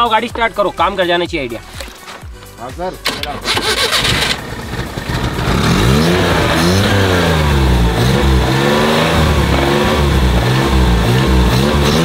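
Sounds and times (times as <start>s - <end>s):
car engine revving: 3.2s - 12.0s.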